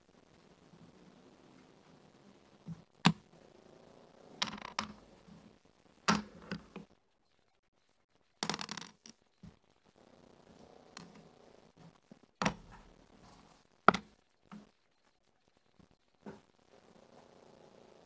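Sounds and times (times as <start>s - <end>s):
checkers clacking on wooden board: 4.4s - 5.1s, 6.1s - 6.8s, 8.4s - 9.2s, 12.4s - 12.9s, 13.9s - 14.7s
dice rattling onto board: 8.4s - 9.2s.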